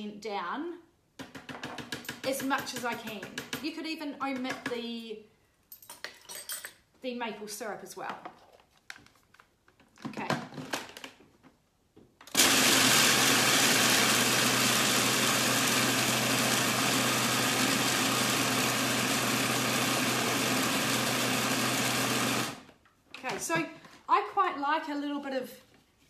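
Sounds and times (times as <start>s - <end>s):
food processor motor running: 12.3s - 22.7s.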